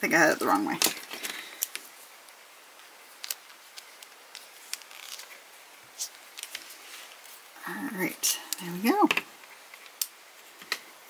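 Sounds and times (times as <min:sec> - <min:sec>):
faint room hiss: 0:00.0 - 0:11.0.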